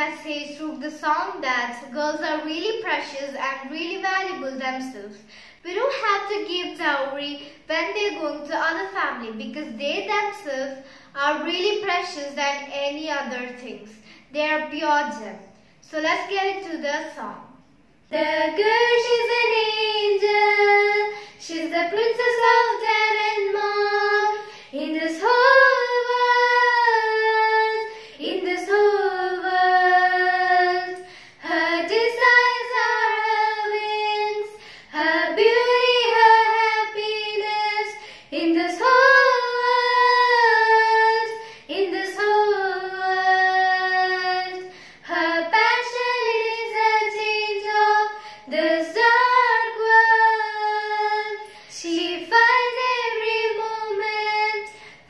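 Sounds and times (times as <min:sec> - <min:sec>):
girls singing unaccompanied: 0:00.0 - 0:05.8, 0:17.4 - 0:55.0.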